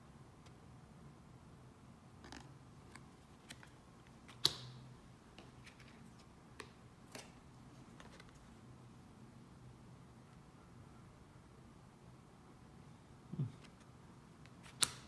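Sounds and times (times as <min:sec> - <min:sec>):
cards clicking and tapping: 0:02.3 - 0:06.0, 0:14.5 - 0:15.0.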